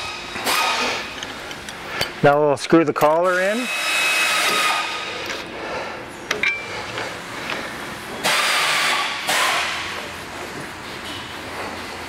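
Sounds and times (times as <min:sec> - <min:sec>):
metal ring: 0:06.4 - 0:06.7.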